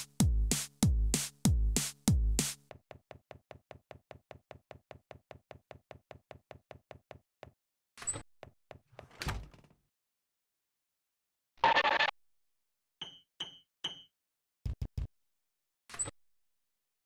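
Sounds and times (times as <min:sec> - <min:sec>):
door opening clatter: 0:08.9 - 0:09.8
door shutting thud: 0:09.0 - 0:09.8.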